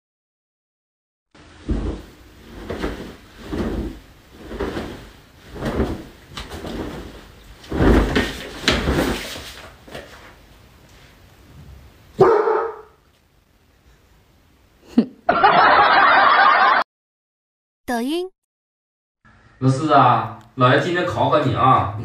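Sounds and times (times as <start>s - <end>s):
cloth quilt flapping: 1.4s - 10.0s
short voice-like sound: 17.9s - 18.3s.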